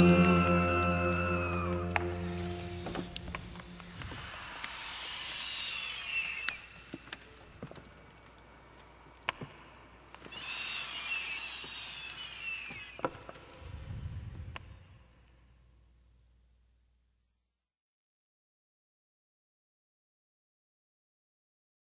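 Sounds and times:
low rumble: 0.0 - 4.6
falling whistle-like glides: 0.0 - 6.9, 10.3 - 13.0
scattered clicks and crackles: 6.9 - 10.3.

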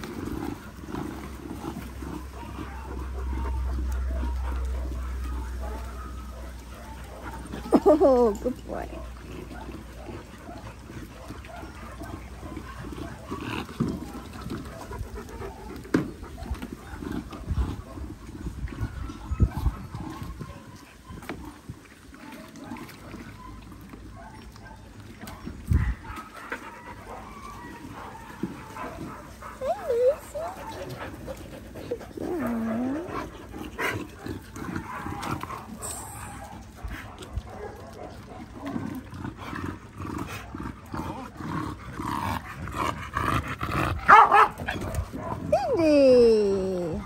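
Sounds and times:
dog panting: 8.7 - 18.1, 25.3 - 44.2
dog howling: 25.9 - 31.0.

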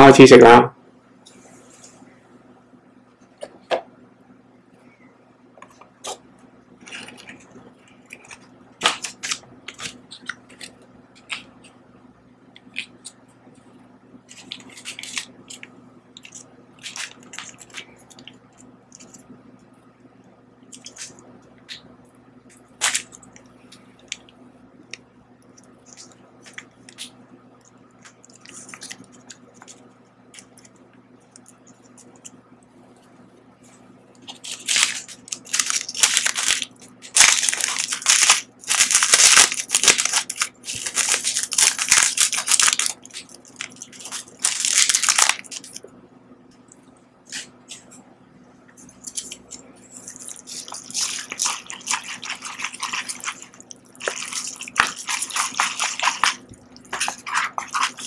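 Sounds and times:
plastic sachet crinkling: 14.3 - 19.2, 28.0 - 30.7, 34.2 - 45.8, 48.9 - 58.0
sachet squeezed with loud crinkling: 34.3 - 45.8, 50.1 - 58.0.

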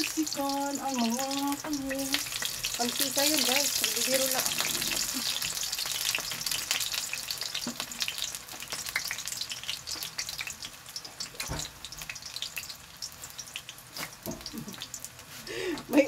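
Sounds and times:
eggplant sizzling in oil: 0.0 - 16.0.

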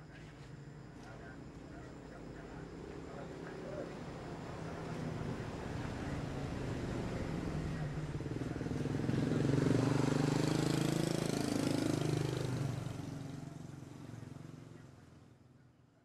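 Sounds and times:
vehicle engine passing by: 3.8 - 14.8.

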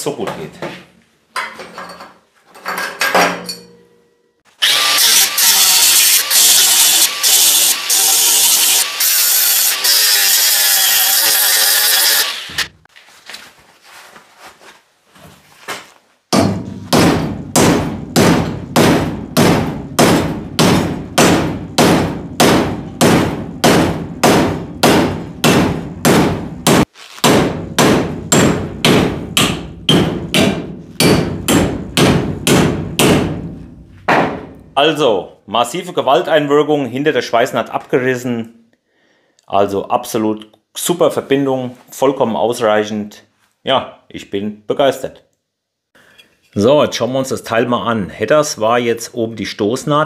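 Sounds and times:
hammer striking metal tube: 3.0 - 3.9, 16.4 - 34.6
angle grinder grinding metal: 4.6 - 12.8.

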